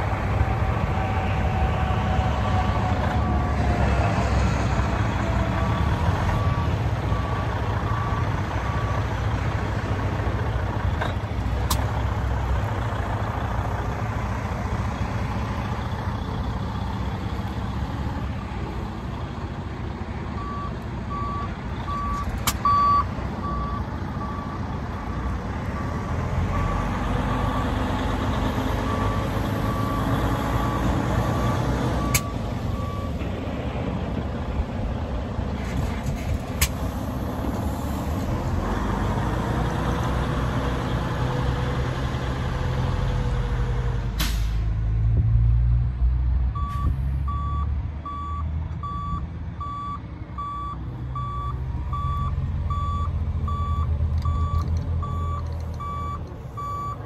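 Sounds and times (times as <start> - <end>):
truck diesel engine running: 0.0 - 44.6
reversing alarm beeping: 20.4 - 27.8, 28.8 - 33.2, 46.6 - 57.0.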